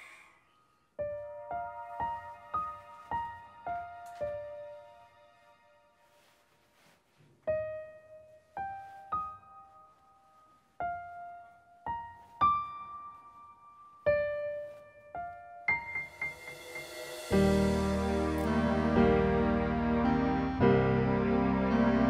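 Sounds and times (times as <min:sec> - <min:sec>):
slow piano melody: 0:00.0 - 0:22.0.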